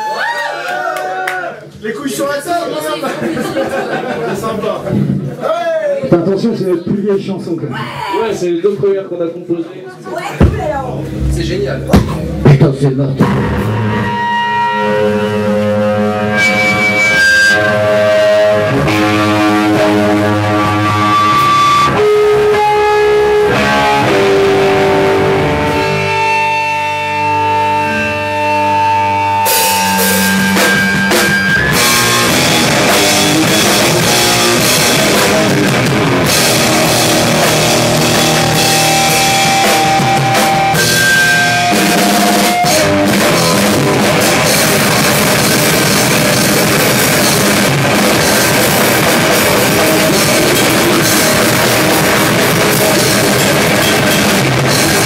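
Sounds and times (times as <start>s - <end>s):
live rock band playing: 10.1s - 55.0s
drum kit: 10.2s - 55.0s
electric guitar held notes: 13.2s - 55.0s.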